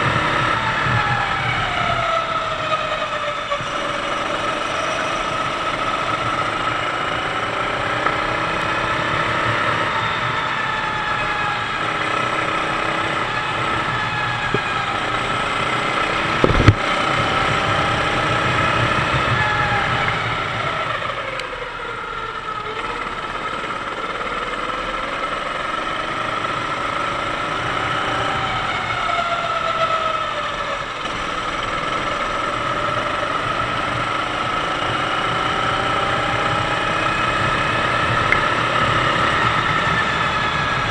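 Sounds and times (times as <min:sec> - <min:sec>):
kart engine running hard: 0:00.0 - 0:40.9
brief thump: 0:16.4 - 0:16.8.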